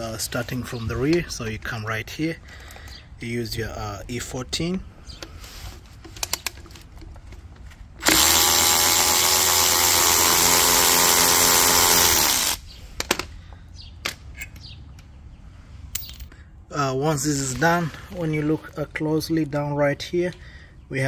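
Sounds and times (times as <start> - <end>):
electric ratchet running: 8.0 - 12.6.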